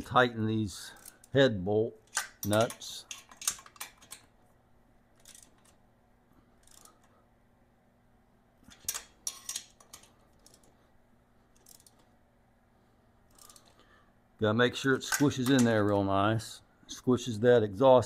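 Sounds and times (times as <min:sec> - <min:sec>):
hand ratchet clicking: 0:00.9 - 0:01.4, 0:05.2 - 0:05.8, 0:06.6 - 0:07.1, 0:11.6 - 0:12.1, 0:13.3 - 0:13.8.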